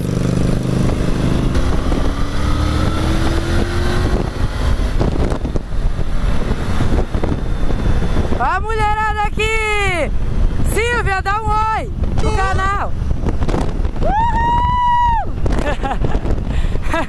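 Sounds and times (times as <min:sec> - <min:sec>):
motorcycle engine accelerating: 0:00.0 - 0:09.0, 0:12.9 - 0:14.0
wind rushing over microphone: 0:00.0 - 0:17.0.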